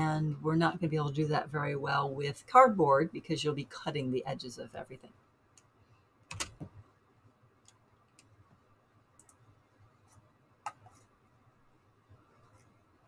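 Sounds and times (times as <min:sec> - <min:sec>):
computer mouse clicks: 0:09.2 - 0:09.4.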